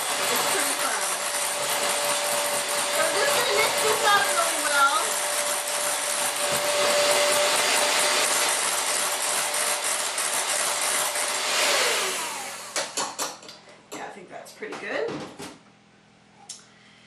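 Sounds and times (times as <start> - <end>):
electric hand mixer running: 0.0 - 13.1.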